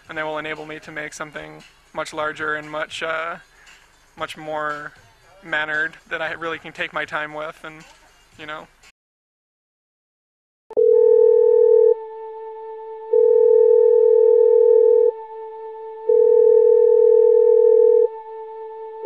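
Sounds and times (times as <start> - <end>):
sustained electronic tone: 11.4 - 19.0.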